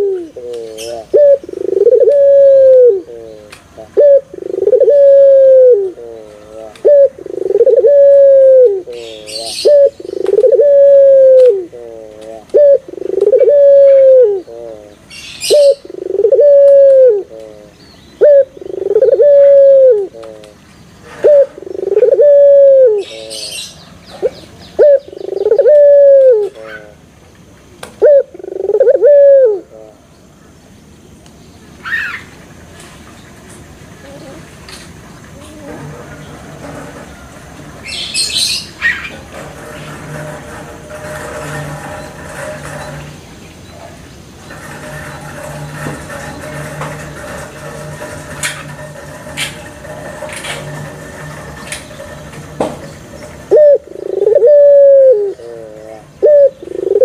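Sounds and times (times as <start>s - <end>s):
dove cooing: 0.0s - 27.0s, 28.0s - 30.0s, 53.3s - 57.0s.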